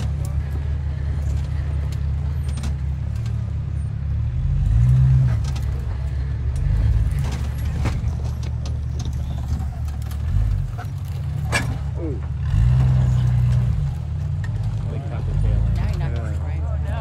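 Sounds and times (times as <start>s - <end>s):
engine running at low revs: 0.0s - 17.0s
rocks clicking under tyres: 5.3s - 11.5s.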